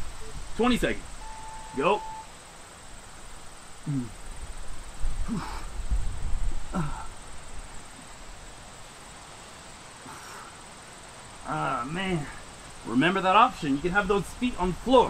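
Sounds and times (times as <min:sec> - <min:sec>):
man grunting with effort: 0:03.8 - 0:04.2, 0:05.2 - 0:05.8, 0:06.7 - 0:07.2
wind rumble on microphone: 0:04.2 - 0:07.9.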